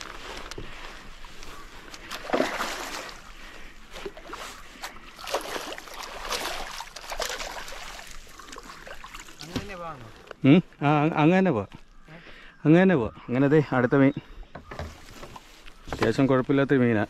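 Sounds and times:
water splashing around boat: 0:00.0 - 0:10.1.

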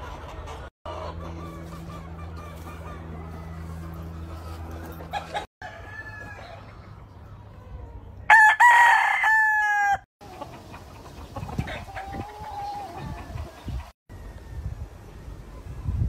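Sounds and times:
rooster crowing loudly: 0:05.6 - 0:06.6, 0:08.3 - 0:10.1.

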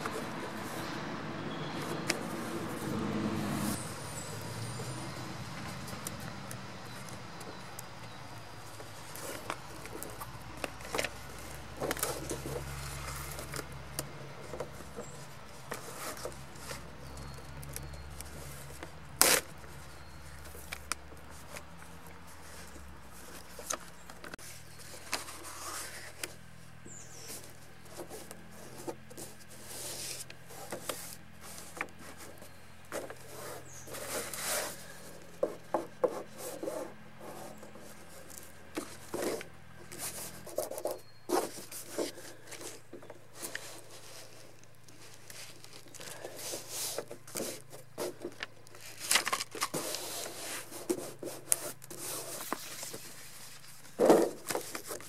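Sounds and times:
plastic film rustling and crinkling: 0:37.6 - 0:55.0.

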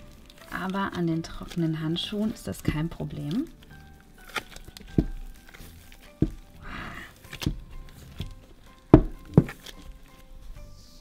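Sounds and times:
slime squish: 0:00.0 - 0:11.0
soft background music: 0:00.0 - 0:11.0
dull thuds of slime: 0:04.3 - 0:06.6, 0:07.2 - 0:09.9.

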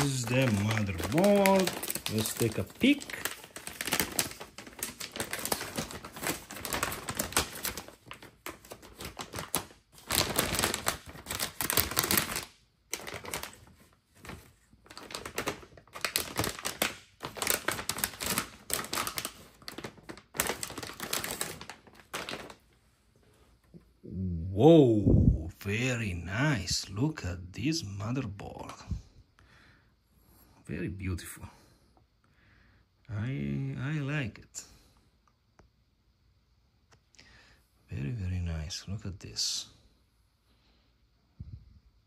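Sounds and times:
plastic bag crinkling: 0:00.0 - 0:22.8.

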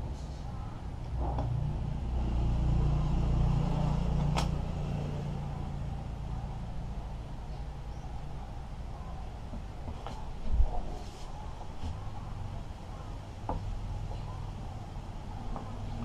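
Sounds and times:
passing vehicle engine rumble: 0:00.0 - 0:09.3.

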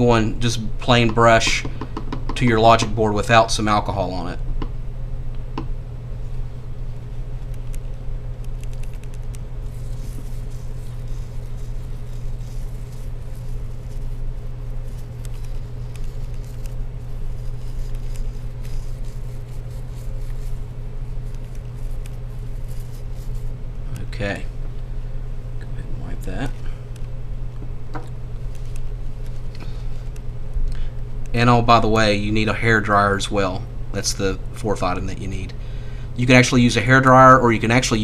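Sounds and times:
steady low hum: 0:00.0 - 0:38.0
toothbrush scrubbing circuit board: 0:08.4 - 0:23.4.

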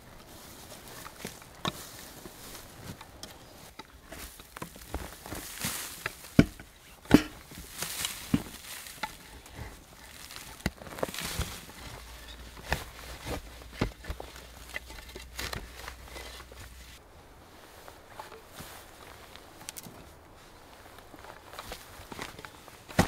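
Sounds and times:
loose soil falling: 0:00.1 - 0:17.0, 0:21.0 - 0:23.0
hand tool chopping into earth: 0:03.2 - 0:09.3.

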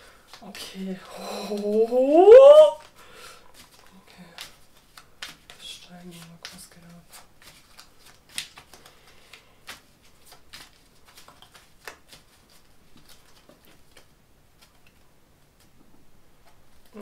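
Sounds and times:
cards being shuffled: 0:00.2 - 0:02.0, 0:02.7 - 0:15.8.

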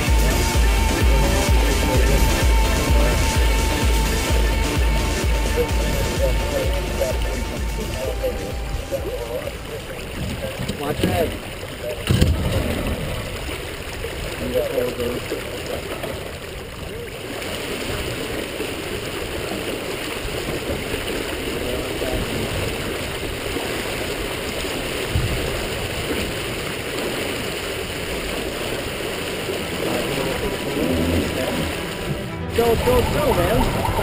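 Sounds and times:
water rushing along hull: 0:00.0 - 0:34.0
low thump: 0:12.0 - 0:13.1
wind rumble: 0:28.0 - 0:34.0.

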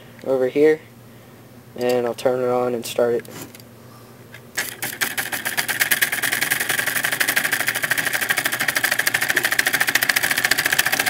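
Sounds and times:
solenoid engine clicking: 0:04.4 - 0:11.0.

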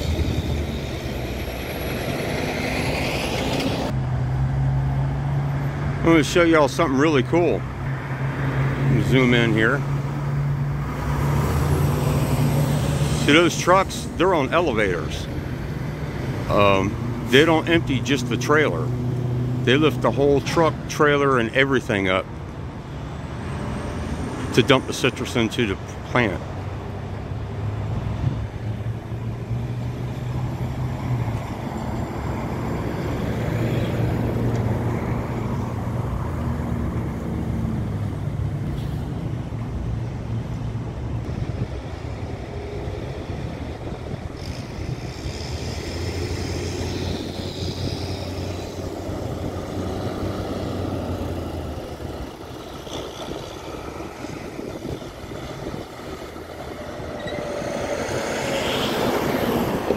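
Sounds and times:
diesel truck engines droning: 0:00.0 - 0:59.9
vehicle passing close: 0:27.4 - 0:59.9.

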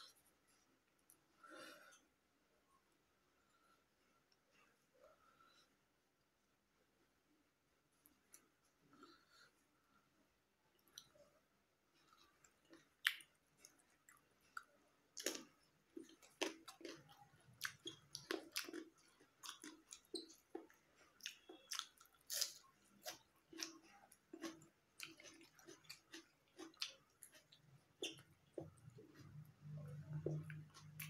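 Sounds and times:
person chewing with mouth clicks: 0:12.0 - 0:31.0.

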